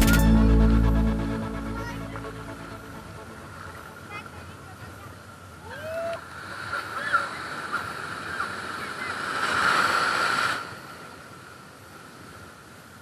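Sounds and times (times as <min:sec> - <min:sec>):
sea surf on a beach: 0:02.9 - 0:13.0.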